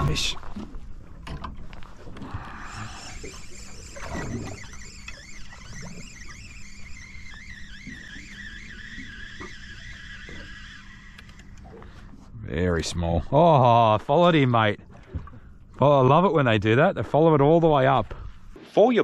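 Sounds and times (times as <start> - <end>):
fishing reel gears whining: 2.3 - 11.8.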